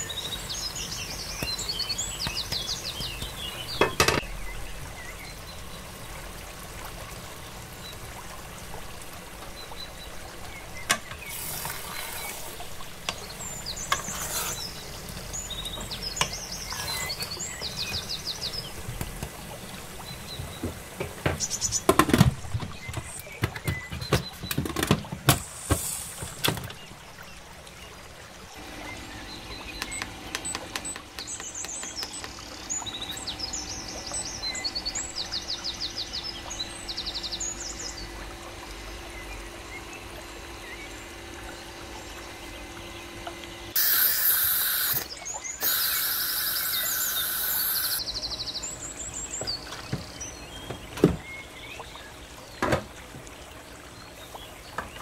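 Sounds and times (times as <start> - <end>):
birds chirping: 0.0 - 5.8, 9.5 - 24.5, 28.8 - 38.2, 38.8 - 52.6
wooden spoon scraping metal pot: 14.0 - 14.7, 16.6 - 17.3.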